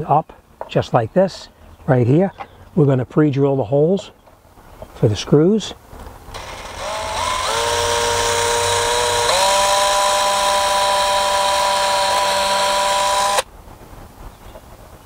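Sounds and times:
cordless drill motor whine: 0:06.3 - 0:13.5.

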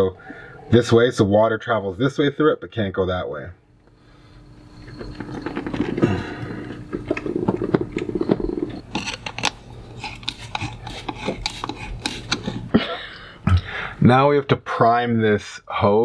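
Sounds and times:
plastic valve clicking and rubbing: 0:07.0 - 0:12.6.

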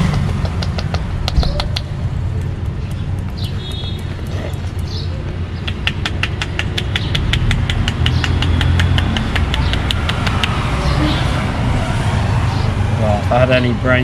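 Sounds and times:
hands slapping a head: 0:00.0 - 0:01.9, 0:05.6 - 0:10.6
street traffic rumble: 0:00.0 - 0:14.0.

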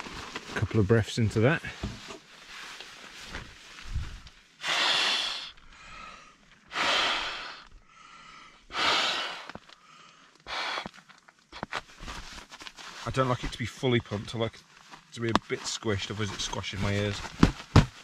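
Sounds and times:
man blowing into inflatable pillow: 0:04.6 - 0:05.6, 0:06.7 - 0:07.6, 0:08.7 - 0:09.5, 0:10.5 - 0:11.6.

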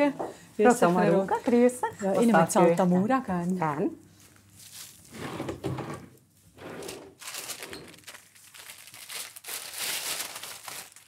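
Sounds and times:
rustling of goods being handled: 0:03.2 - 0:11.0.

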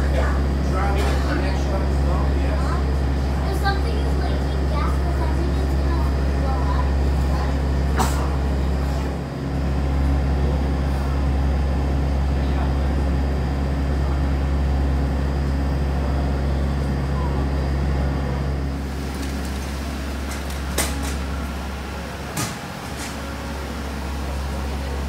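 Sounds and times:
vehicle engine drone: 0:00.0 - 0:25.0.

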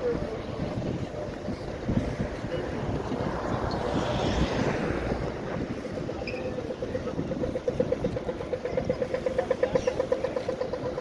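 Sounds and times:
street traffic: 0:00.0 - 0:11.0
wind on microphone: 0:00.0 - 0:11.0.

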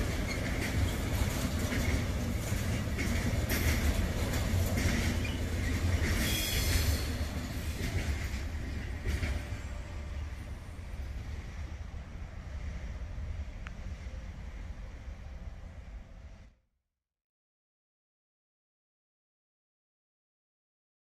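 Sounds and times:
wheels clacking over rail joints: 0:00.0 - 0:09.9
freight train rumble: 0:00.0 - 0:16.6
high wheel squeal: 0:05.1 - 0:07.3.

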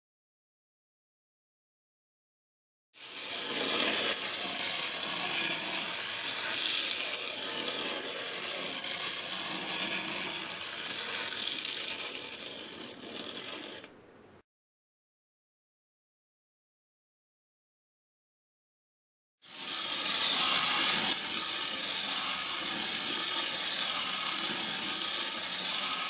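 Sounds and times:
wind-up toy train whirring: 0:03.0 - 0:13.9, 0:19.4 - 0:26.0.

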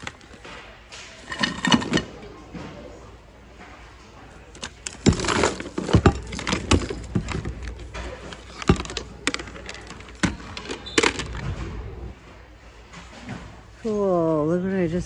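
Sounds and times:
objects clattering in a bin: 0:00.0 - 0:02.8, 0:04.5 - 0:12.1.

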